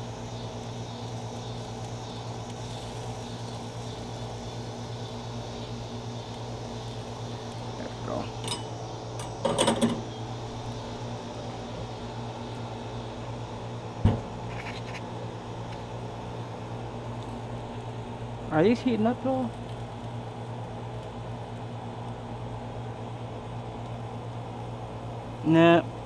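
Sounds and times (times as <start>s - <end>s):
mechanical hum: 0.0s - 26.0s
utensils clinking on grill grate: 7.8s - 10.2s
sharp knock: 14.0s - 14.3s.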